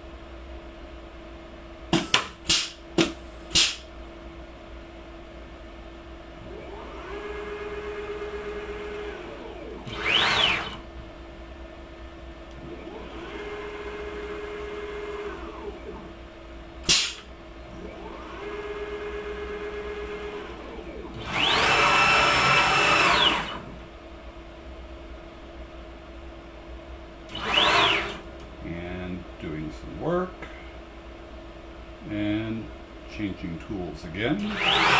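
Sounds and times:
cnc router axes whining: 6.4s - 10.9s, 12.5s - 16.1s, 17.7s - 23.8s, 27.3s - 28.3s, 34.3s - 34.9s.

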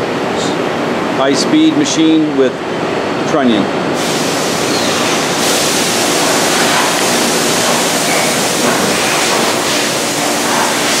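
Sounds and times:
machine shop rushing hiss: 4.0s - 11.0s.

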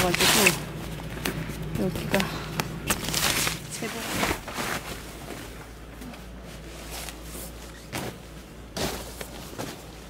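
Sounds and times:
foil mat crinkling: 0.0s - 0.9s, 2.8s - 5.3s.

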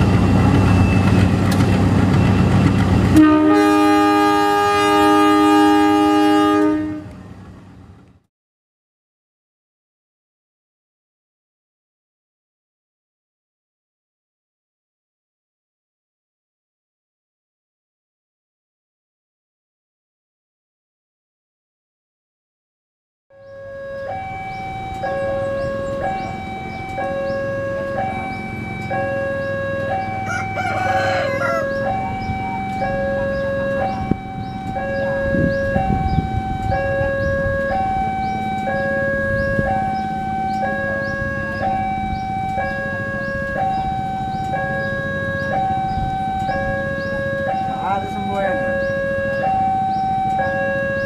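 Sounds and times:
level crossing two-tone alarm: 23.3s - 51.0s
rooster crowing: 30.2s - 32.2s.

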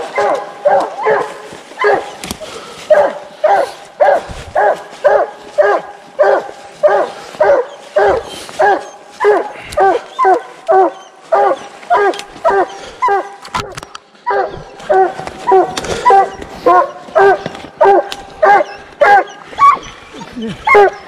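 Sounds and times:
hound barking: 0.0s - 21.0s.

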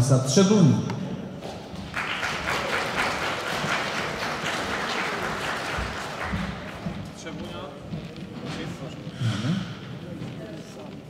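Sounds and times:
audience applauding: 1.8s - 7.3s.

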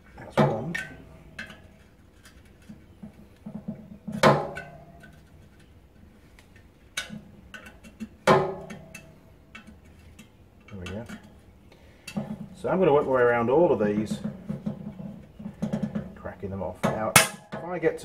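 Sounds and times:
light metal ticks and taps: 6.3s - 12.4s.

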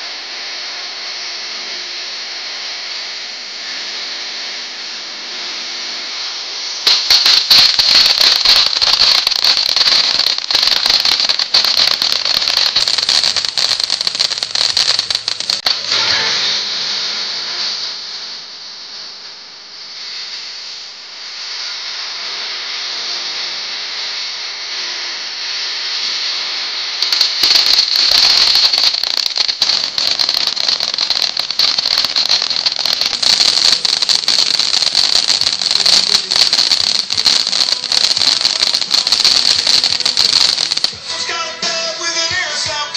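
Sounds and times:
firework fountain hissing: 0.0s - 5.2s, 6.1s - 22.2s, 26.8s - 42.9s
firework crackling: 6.5s - 21.6s, 26.8s - 42.9s.

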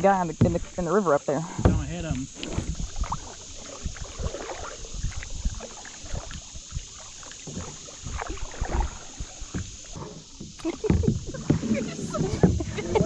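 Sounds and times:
paddle splashing water: 0.0s - 13.0s
low knocks: 1.5s - 3.0s.

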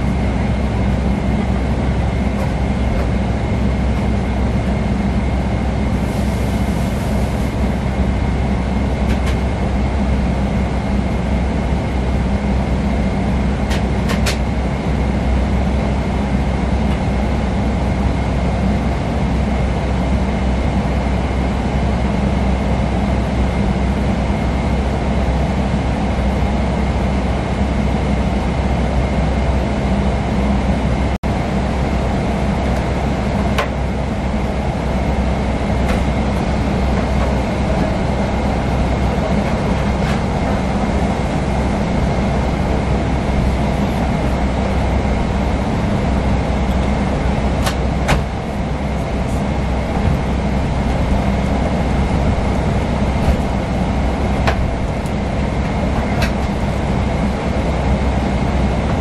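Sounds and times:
jet engine rumble and airflow: 0.0s - 59.0s
thin steady whine: 30.0s - 59.0s.

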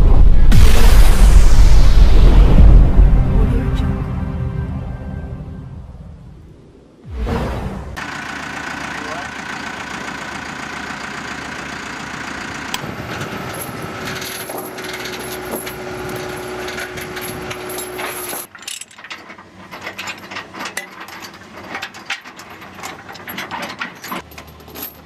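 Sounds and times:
steady hum tone: 0.0s - 7.1s
heavy equipment engine running: 8.0s - 18.5s
ratchet chain binder: 13.0s - 25.0s
steel chains clinking and rattling: 13.0s - 25.0s.

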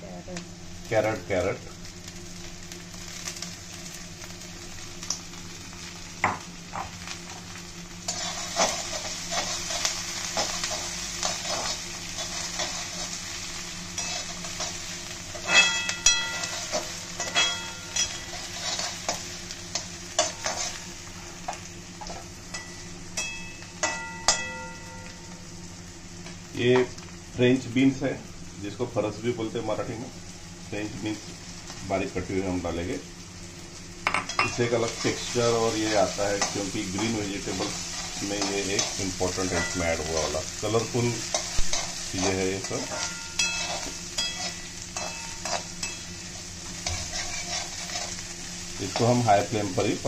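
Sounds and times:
vegetables sizzling in hot oil: 0.0s - 50.0s
metal spatula scraping a pan: 8.1s - 13.1s, 15.3s - 20.8s, 41.3s - 46.1s, 46.8s - 48.3s
spatula clanging on pan rim: 15.4s - 19.2s, 22.5s - 25.1s, 36.4s - 40.3s, 41.3s - 46.1s.

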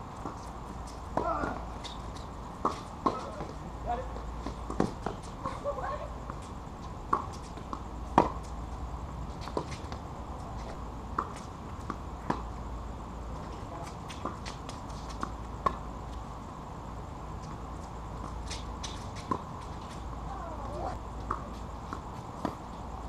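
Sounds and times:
tennis ball hit by rackets: 2.6s - 3.5s, 7.1s - 8.4s.

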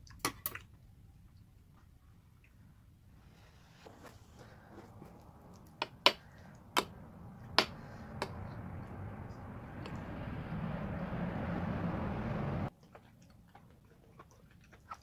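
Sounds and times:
steady noise: 3.8s - 12.7s.

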